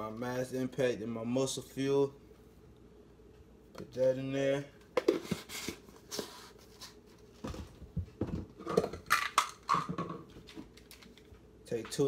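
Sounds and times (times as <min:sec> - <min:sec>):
plastic containers clicking and rattling: 0:08.2 - 0:11.3.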